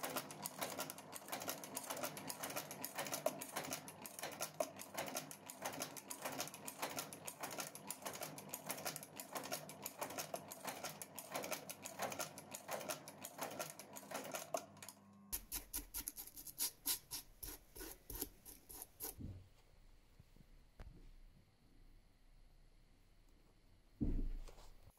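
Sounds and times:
sewing machine needle clatter: 0.0 - 15.0.

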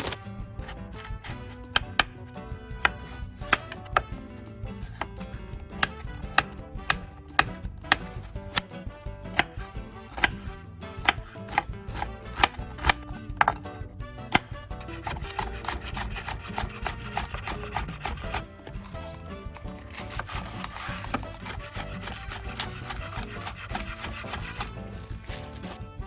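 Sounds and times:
knife chopping on cutting board: 0.0 - 25.9.

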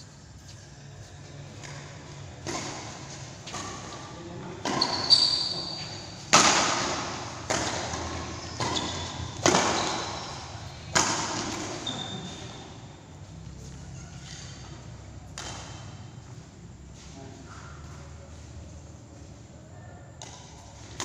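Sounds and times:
rackets striking shuttlecock: 1.6 - 12.2, 14.4 - 16.2, 20.2 - 21.0
short high squeaks: 4.8 - 6.2, 8.4 - 10.5, 11.7 - 12.6.

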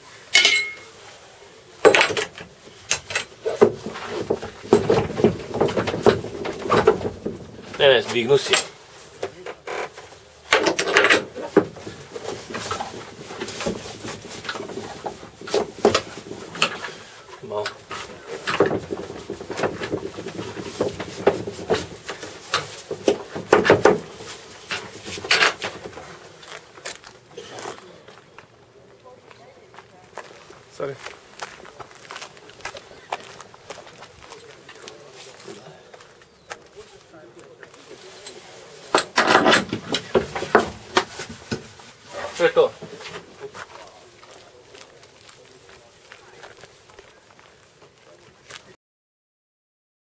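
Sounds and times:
strap and metal fittings knocking: 0.3 - 0.9, 1.8 - 7.8, 9.5 - 16.9, 17.6 - 26.0, 38.9 - 41.7
sharp knocks: 18.4 - 25.9.

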